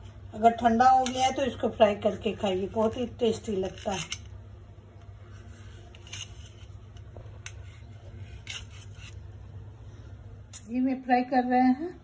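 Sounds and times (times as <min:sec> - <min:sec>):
low steady hum: 0:00.0 - 0:12.0
knife scraping steel plate: 0:05.7 - 0:06.8, 0:07.4 - 0:09.3.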